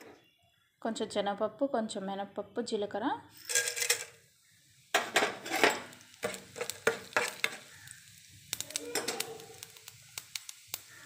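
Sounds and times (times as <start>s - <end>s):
seeds sizzling in hot oil: 3.2s - 11.0s
sharp crackles and pops: 4.0s - 11.0s.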